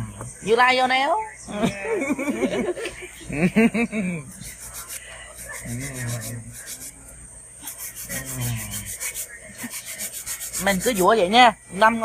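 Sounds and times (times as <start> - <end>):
nail file rasping on nails: 4.3 - 11.4.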